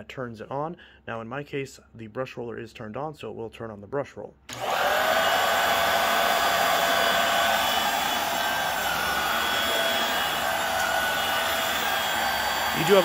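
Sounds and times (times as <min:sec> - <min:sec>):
vacuum cleaner running: 0:04.5 - 0:13.0.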